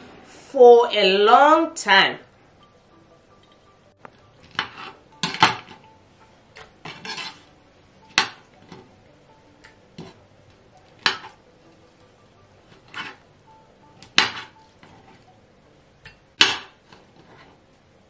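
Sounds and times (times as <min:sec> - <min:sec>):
knife scraping: 0:04.4 - 0:05.8, 0:06.6 - 0:07.5, 0:10.0 - 0:10.2, 0:12.7 - 0:13.2, 0:14.1 - 0:15.3, 0:16.8 - 0:17.6.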